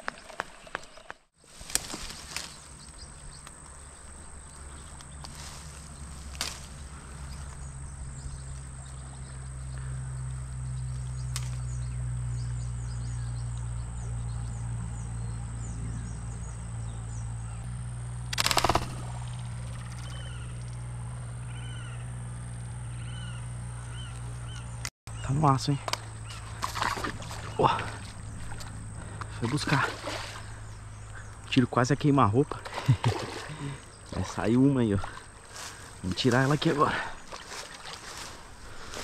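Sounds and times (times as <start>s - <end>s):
small birds chirping: 0.7s - 17.7s, 18.4s - 39.0s
steady low rumble: 1.6s - 32.4s.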